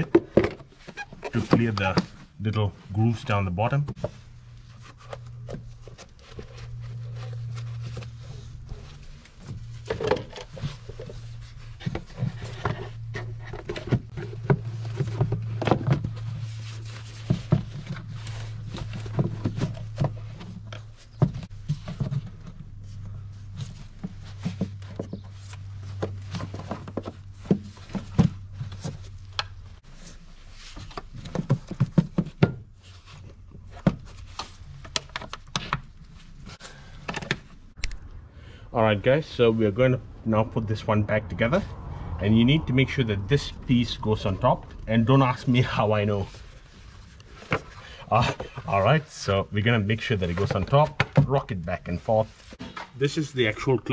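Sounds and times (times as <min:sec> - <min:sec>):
low steady hum: 0:01.3 - 0:53.9.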